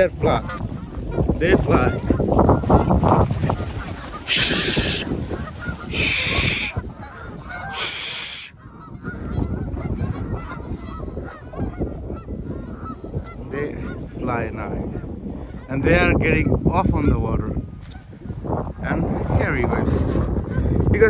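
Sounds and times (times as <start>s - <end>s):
geese honking: 0.2s - 14.1s.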